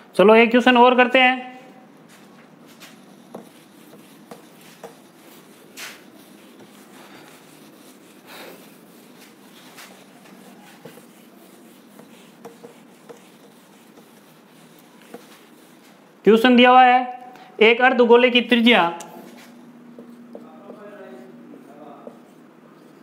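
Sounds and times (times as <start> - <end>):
eraser swishing on whiteboard: 2.0 - 16.2, 19.0 - 23.0.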